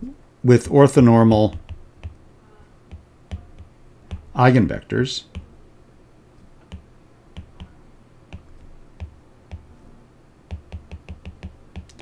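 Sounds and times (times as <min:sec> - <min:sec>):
stylus tapping on tablet screen: 0:01.4 - 0:02.3, 0:02.9 - 0:04.4, 0:05.2 - 0:05.5, 0:06.6 - 0:09.8, 0:10.5 - 0:12.0.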